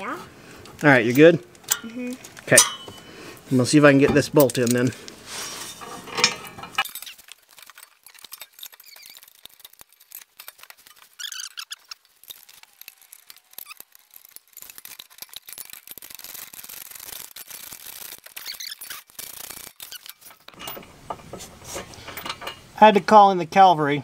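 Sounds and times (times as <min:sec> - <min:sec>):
bolt clicks and scrapes: 0:04.1 - 0:22.7.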